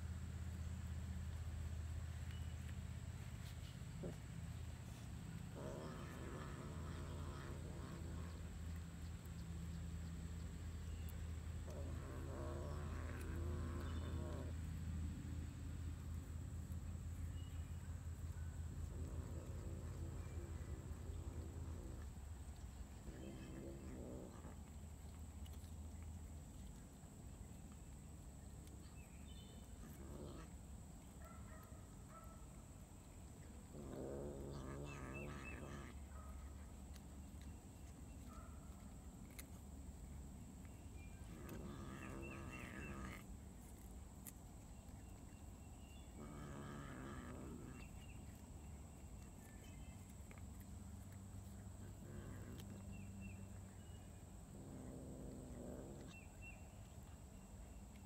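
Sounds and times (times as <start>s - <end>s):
cat growling low: 5.4s - 8.7s, 11.6s - 15.5s, 18.7s - 25.6s, 29.7s - 30.6s, 33.6s - 36.7s, 41.2s - 43.8s, 46.1s - 48.4s, 51.4s - 53.8s, 54.4s - 56.4s.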